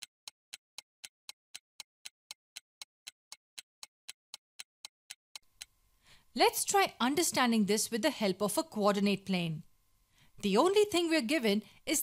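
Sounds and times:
clock ticking: 0.0s - 5.8s.

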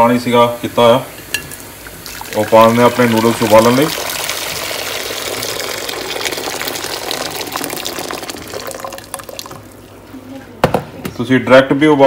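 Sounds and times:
water pouring into a pot: 1.8s - 9.8s.

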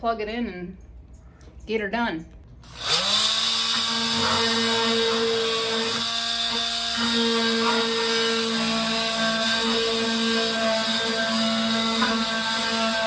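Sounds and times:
power cutting tool cutting metal: 2.6s - 13.0s.

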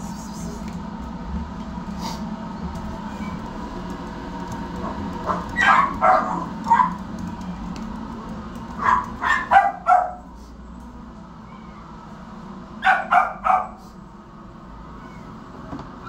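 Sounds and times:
small dogs barking: 4.7s - 7.2s, 8.7s - 10.4s, 12.8s - 14.0s.

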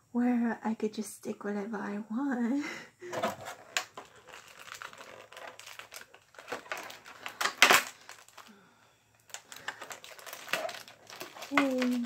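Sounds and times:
plastic packaging crinkling: 3.1s - 12.0s.

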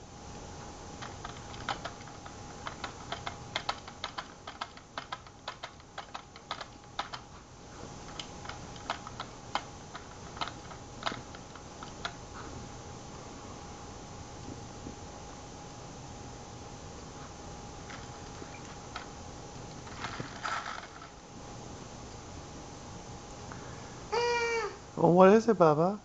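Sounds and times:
rapid light key clicks: 1.0s - 7.3s, 8.0s - 12.2s.

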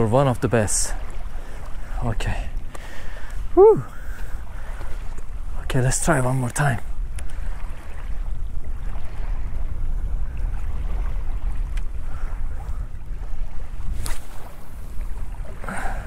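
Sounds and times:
small waves lapping: 0.0s - 16.0s
wind buffeting microphone: 0.0s - 16.0s
fishing rod casting: 10.5s - 16.0s.

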